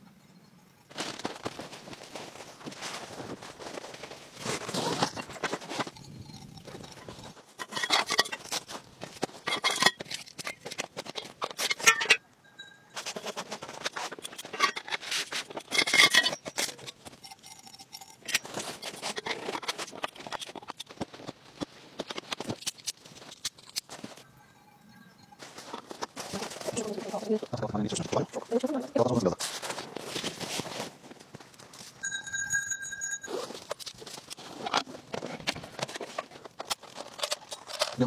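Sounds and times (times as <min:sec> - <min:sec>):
tent fabric rustling: 0:00.9 - 0:06.0, 0:25.4 - 0:32.0
frame parts clicking: 0:33.7 - 0:38.0.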